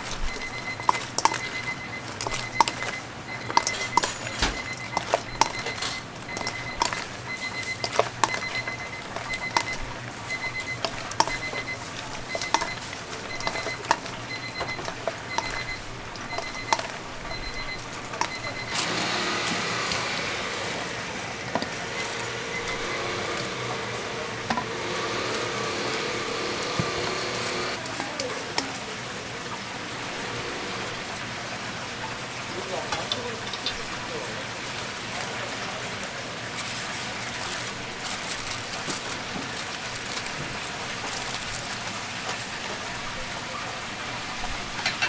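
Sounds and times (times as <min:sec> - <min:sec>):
chicken deep-frying in oil: 0:00.0 - 0:45.0
high beep: 0:00.3 - 0:19.0, 0:22.0 - 0:23.7
clinks and knocks: 0:02.2 - 0:07.0.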